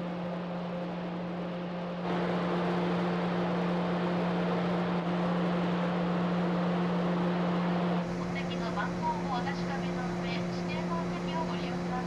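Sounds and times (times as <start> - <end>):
ferry engine drone: 0.0 - 12.0.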